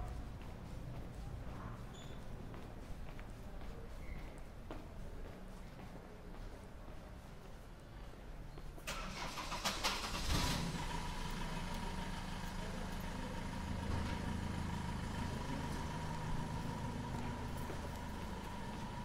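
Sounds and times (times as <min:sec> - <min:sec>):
vehicle engine idling: 0:08.9 - 0:19.0.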